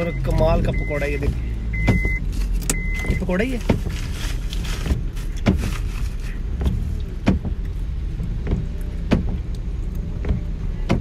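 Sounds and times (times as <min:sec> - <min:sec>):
car cabin rumble while driving: 0:00.0 - 0:11.0.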